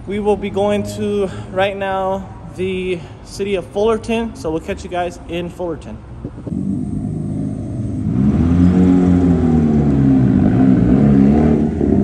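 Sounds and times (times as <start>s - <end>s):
car engine driving past: 6.5s - 12.0s.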